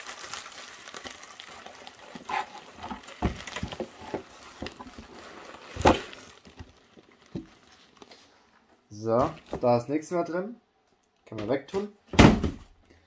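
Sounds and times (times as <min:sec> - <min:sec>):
bubble wrap crinkling: 0:00.0 - 0:09.6.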